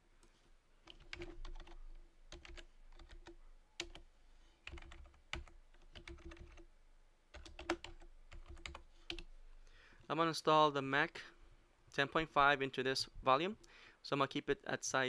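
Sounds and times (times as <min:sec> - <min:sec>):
faint keyboard typing: 0:00.2 - 0:06.7, 0:07.3 - 0:09.3.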